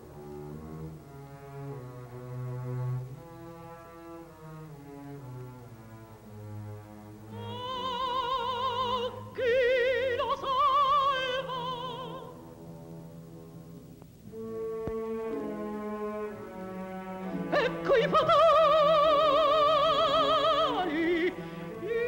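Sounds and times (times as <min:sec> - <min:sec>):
orchestra with low strings: 0:00.0 - 0:22.0
operatic mezzo-soprano singing: 0:07.2 - 0:12.5, 0:17.2 - 0:22.0.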